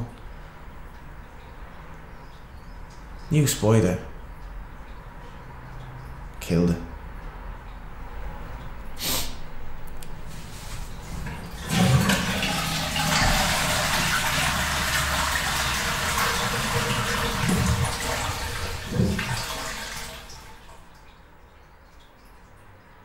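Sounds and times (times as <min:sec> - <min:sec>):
toilet flushing: 0:10.2 - 0:21.2.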